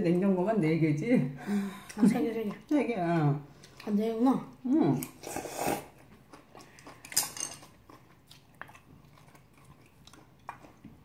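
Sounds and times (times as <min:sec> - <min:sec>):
quiet chewing: 0:01.8 - 0:11.0
slurping noodles: 0:05.1 - 0:06.0
utensils clinking on metal bowls: 0:07.0 - 0:07.7.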